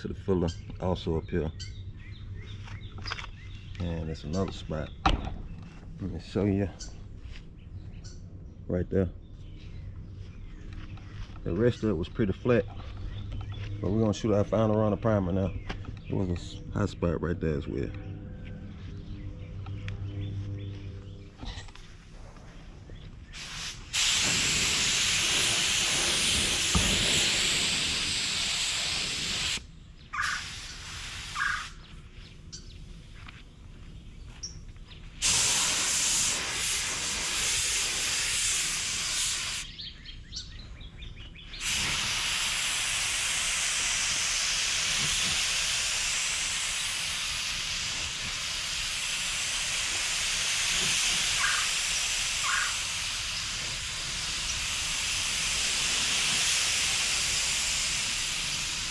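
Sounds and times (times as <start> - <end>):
spray gun hissing: 23.4 - 29.6, 30.2 - 31.8, 35.2 - 39.7, 41.6 - 58.9.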